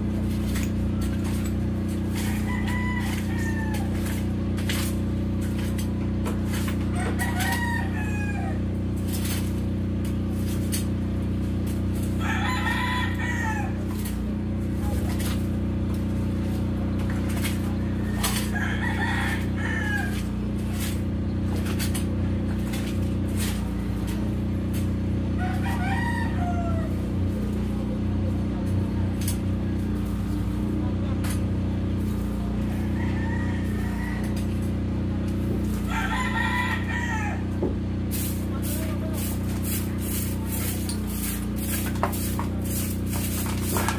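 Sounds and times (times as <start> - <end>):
construction machinery engine drone: 0.0 - 43.9
rooster crowing: 2.1 - 4.2, 6.9 - 8.8, 12.1 - 13.9, 17.8 - 20.4, 25.3 - 27.1, 32.6 - 34.6, 35.8 - 37.6.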